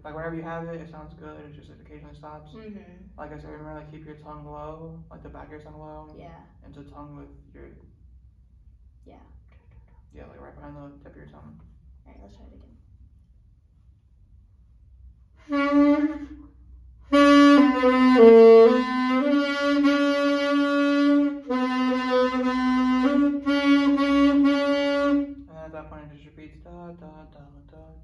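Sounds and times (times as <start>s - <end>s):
saxophone notes: 15.4s - 25.6s.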